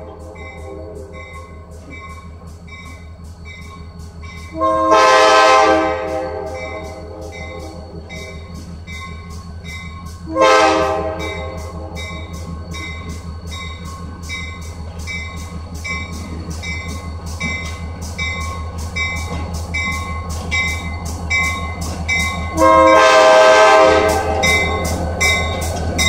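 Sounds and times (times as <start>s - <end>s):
locomotive bell ringing: 0.0s - 26.0s
locomotive engine rumbling: 0.0s - 26.0s
train air horn chord: 4.5s - 8.3s, 10.2s - 12.1s, 22.5s - 24.8s.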